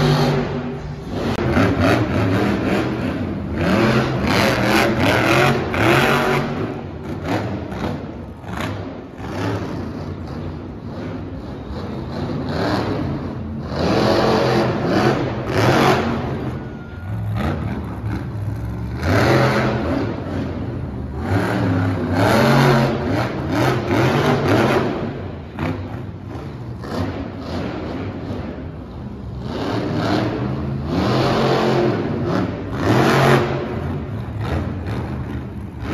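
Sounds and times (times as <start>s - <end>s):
truck engine revving: 0.0s - 35.9s.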